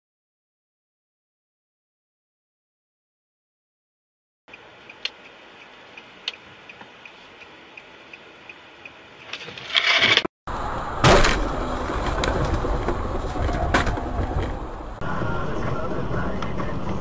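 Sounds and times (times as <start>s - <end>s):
moving car noise: 4.5s - 17.0s
sharp bang: 11.0s - 11.5s.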